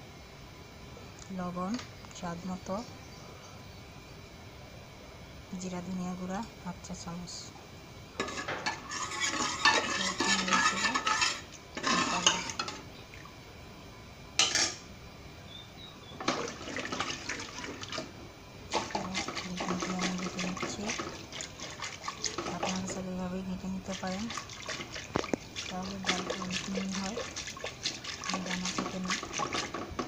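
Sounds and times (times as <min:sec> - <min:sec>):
metal ladle scraping pressure cooker: 0:08.2 - 0:12.8
wooden masher churning wet lentils: 0:08.9 - 0:12.6, 0:18.7 - 0:30.0.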